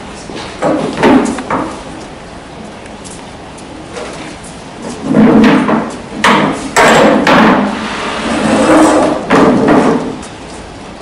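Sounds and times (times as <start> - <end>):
chairs scraping on floor: 3.9 - 6.0, 7.5 - 10.3.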